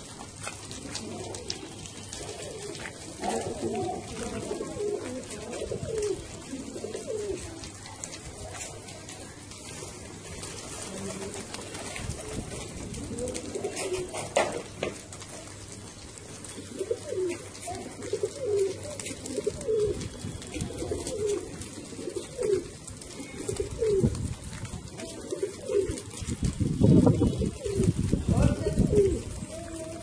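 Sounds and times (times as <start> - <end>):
pigeons cooing: 0.0 - 30.0.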